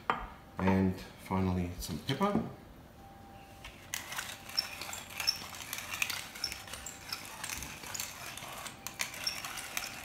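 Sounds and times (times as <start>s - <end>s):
pepper mill grinding peppercorns: 3.6s - 10.0s.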